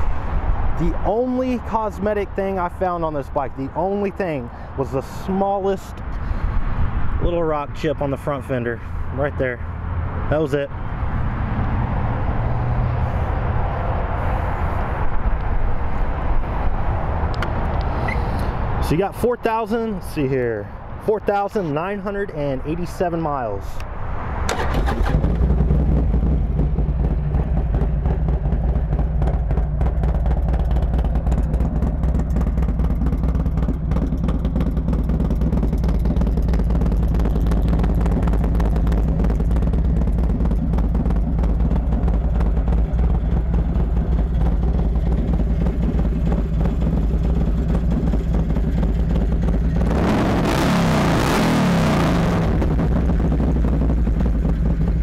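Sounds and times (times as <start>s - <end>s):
motorcycle engine idling: 24.5s - 49.8s, 52.6s - 55.0s.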